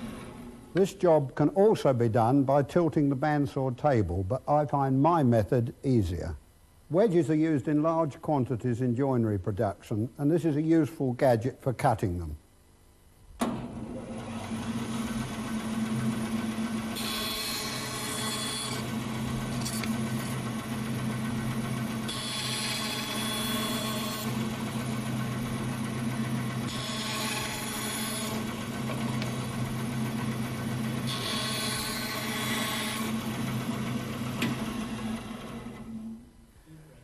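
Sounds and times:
bandsaw humming: 14.2s - 36.0s
saw cutting through wood: 16.3s - 25.2s, 26.6s - 34.0s.

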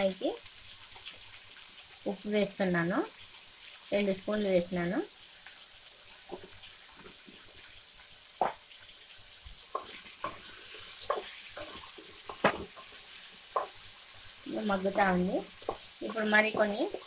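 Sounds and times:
vegetables sizzling in oil: 0.0s - 17.0s
spatula scraping a pan: 9.4s - 17.0s.

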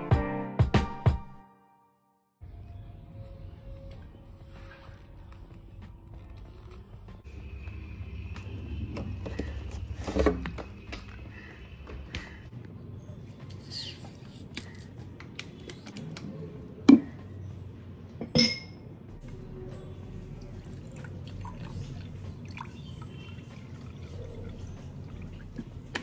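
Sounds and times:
glass clink: 18.2s - 18.8s
liquid pouring into glass: 20.6s - 25.7s.

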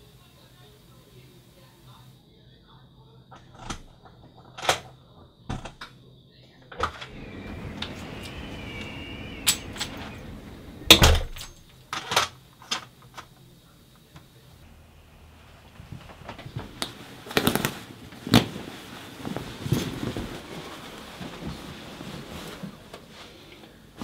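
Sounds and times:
door shutting with thump: 6.8s - 12.3s
door handle squeak: 7.3s - 11.7s.

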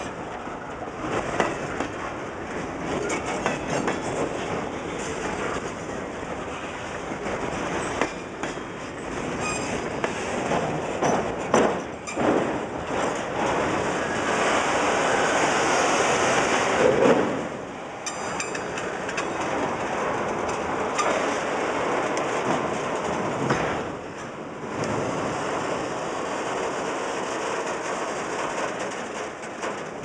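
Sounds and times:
train wheels clattering over rail joints: 0.0s - 30.0s
train wheel squeal: 9.3s - 9.9s, 18.0s - 19.4s, 20.9s - 21.3s.

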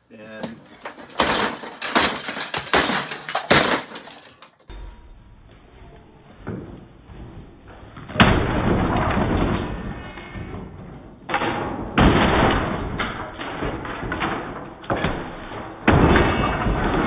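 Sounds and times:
hammer smashing wood: 0.9s - 4.4s, 11.3s - 17.0s
wood cracking and splintering: 8.0s - 17.0s.

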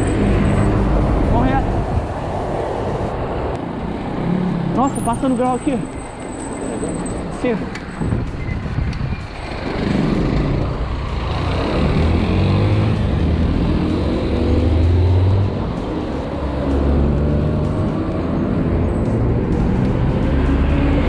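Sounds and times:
street traffic: 0.0s - 21.0s
vehicle engine speeding up: 9.5s - 21.0s.

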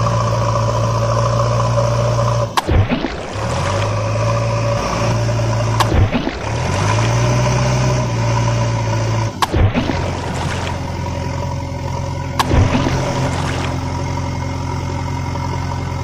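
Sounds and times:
backhoe engine running: 0.0s - 16.0s.

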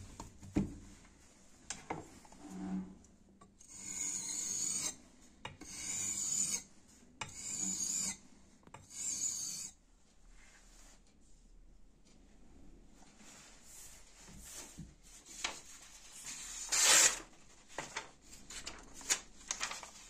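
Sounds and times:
knife scraping on whetstone: 3.6s - 5.0s, 5.6s - 8.2s, 8.8s - 9.7s, 16.6s - 17.2s.

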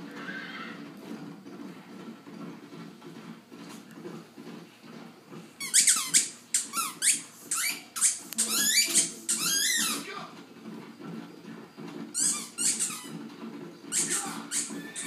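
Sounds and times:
squeaky dog toy squeaking: 5.6s - 10.0s, 12.2s - 13.1s, 13.9s - 15.0s.

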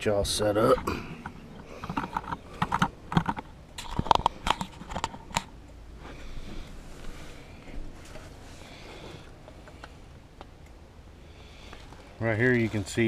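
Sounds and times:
plastic parts clicking and tapping: 1.8s - 5.5s.

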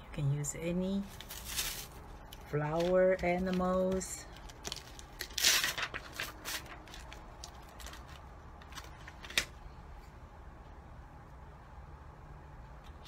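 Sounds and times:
paper rustling: 1.0s - 9.5s.

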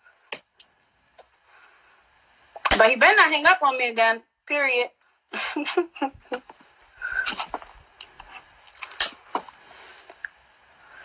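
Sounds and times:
woman laughing breathily: 5.3s - 7.4s.

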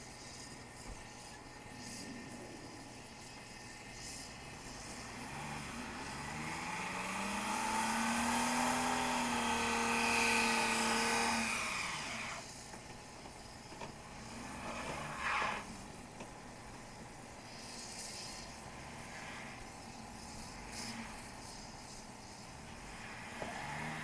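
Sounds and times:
truck engine revving: 4.0s - 12.7s, 13.6s - 24.0s.

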